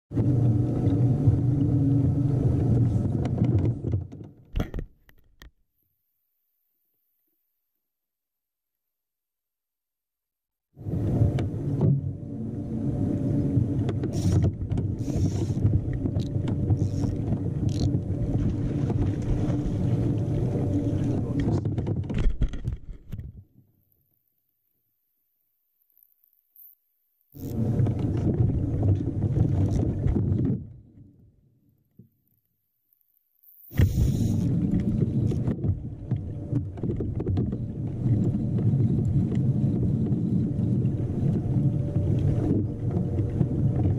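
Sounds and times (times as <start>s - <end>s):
water lapping against hull: 0.1s - 4.5s, 10.8s - 24.0s, 27.3s - 32.2s, 33.4s - 43.9s
wind rumbling on microphone: 0.1s - 4.7s, 10.8s - 23.5s, 27.4s - 31.0s, 33.8s - 43.9s
small knocks and clicks: 3.0s - 5.6s
short hissy bursts: 33.7s - 34.5s.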